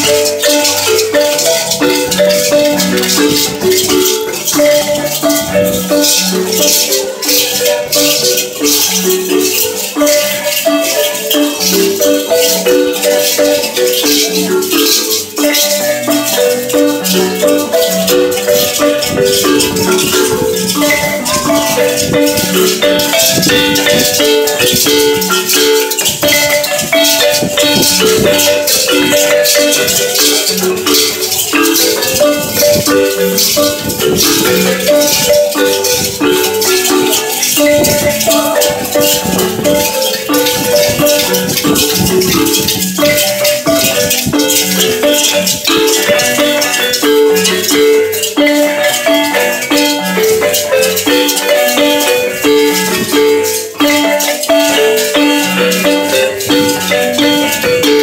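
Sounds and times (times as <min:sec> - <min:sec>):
handheld rattles shaking: 0:00.0 - 0:58.0
marimba dance tune: 0:00.0 - 0:58.0.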